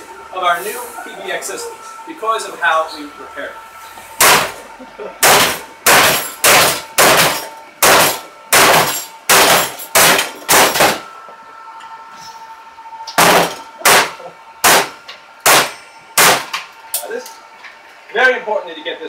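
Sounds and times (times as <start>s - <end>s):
metallic clangs on sheet metal: 5.2s - 11.0s.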